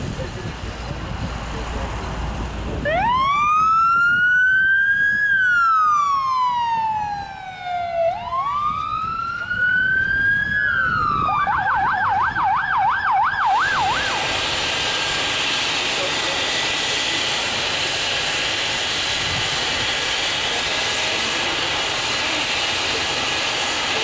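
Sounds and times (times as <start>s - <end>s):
ambulance siren: 2.8s - 15.4s.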